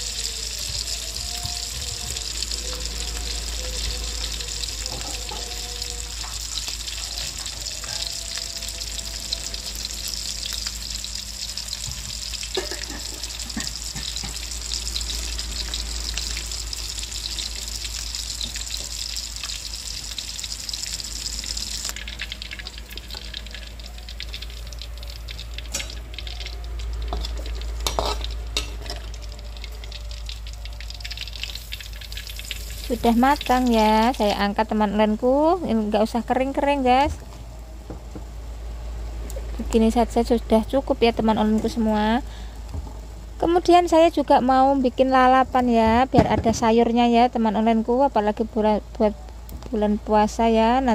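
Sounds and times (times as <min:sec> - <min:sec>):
fish deep-frying in oil: 0:00.0 - 0:50.9
metal spatula scraping wok: 0:27.1 - 0:29.0.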